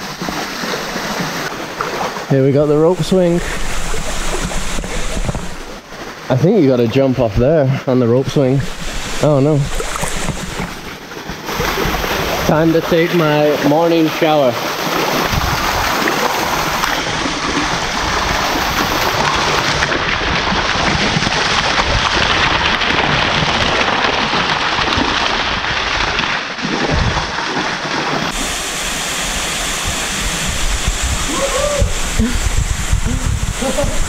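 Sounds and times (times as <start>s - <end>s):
waterfall rushing water: 0.0s - 6.3s, 8.3s - 20.0s, 28.3s - 34.0s.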